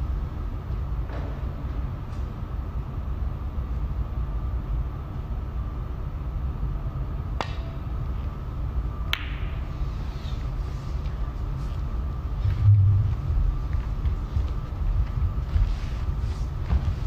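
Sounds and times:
low hum: 11.7 - 17.0.

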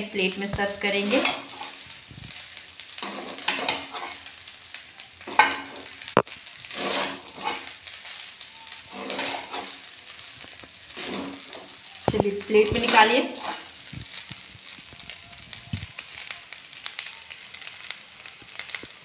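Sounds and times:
spatula scraping rice in steel pan: 0.9 - 4.3, 6.6 - 11.8, 12.8 - 13.8.

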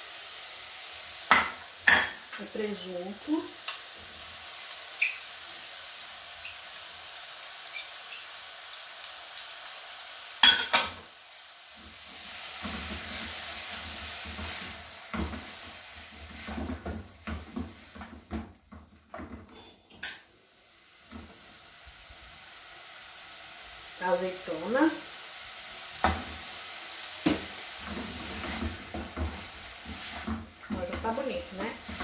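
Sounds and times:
vegetables sizzling in oil: 0.0 - 32.0
stirring scraping against pan: 27.3 - 32.0.

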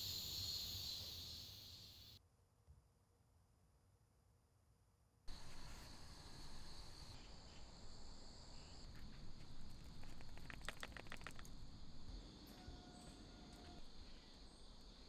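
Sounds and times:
insects chirring: 0.0 - 2.2, 5.3 - 15.0.

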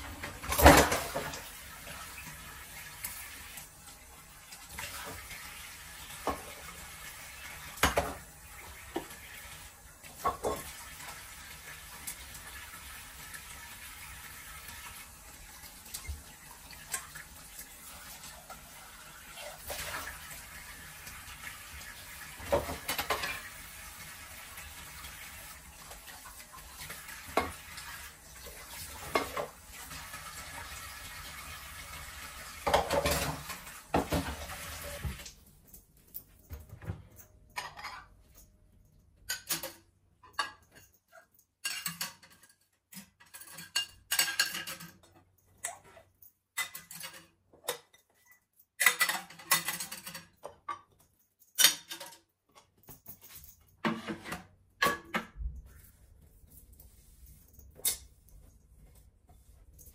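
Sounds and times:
tap water running: 0.0 - 35.8
dishes clattering: 0.1 - 1.4, 10.1 - 10.7, 22.4 - 23.5, 29.0 - 29.6, 32.6 - 34.5, 37.5 - 38.2, 39.3 - 46.0, 46.6 - 48.1, 48.8 - 51.0, 51.6 - 52.2, 53.8 - 55.4
dishes clinking: 32.6 - 34.4, 37.1 - 38.2, 39.3 - 42.5, 43.2 - 46.0, 46.6 - 52.2
tea towel wiping dishes: 55.6 - 59.9.

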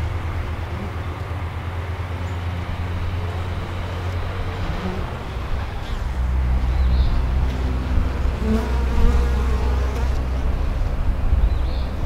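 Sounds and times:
bees buzzing: 3.3 - 10.5
single bees droning past: 3.3 - 10.8.

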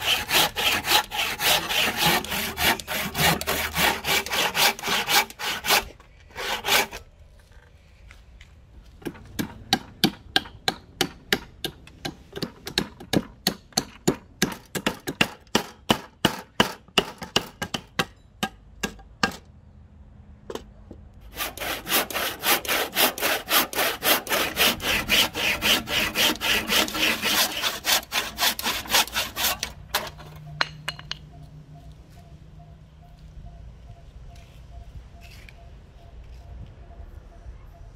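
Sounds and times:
hand saw strokes in wood: 0.0 - 7.0, 21.3 - 29.8.

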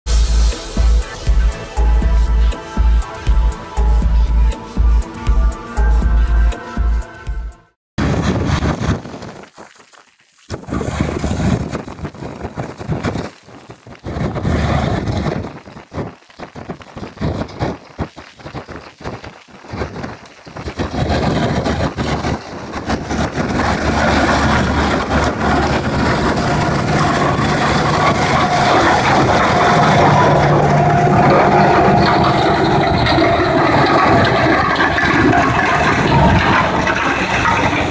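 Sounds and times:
mulcher whine: 0.0 - 6.4, 20.9 - 37.9
mulcher shredding stalks: 8.0 - 37.9
tractor running: 20.3 - 37.9.

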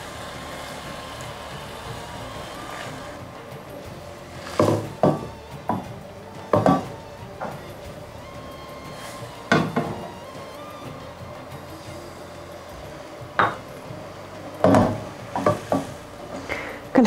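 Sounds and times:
cookware knocking and clinking: 6.5 - 7.6, 13.4 - 13.6.

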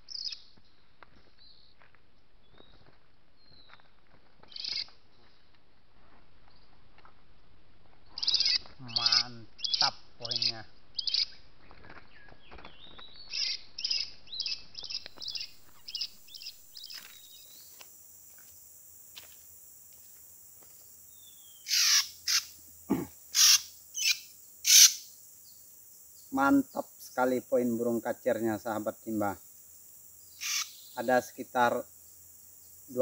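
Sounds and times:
bird chirping calls: 0.0 - 0.5, 4.5 - 4.9, 8.1 - 11.4, 12.0 - 17.8, 21.1 - 28.0, 30.1 - 31.7.

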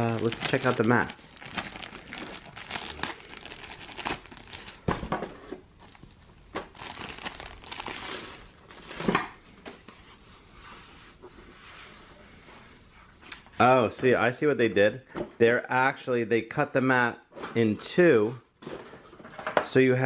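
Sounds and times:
play mats rustling and crinkling: 0.0 - 11.0.

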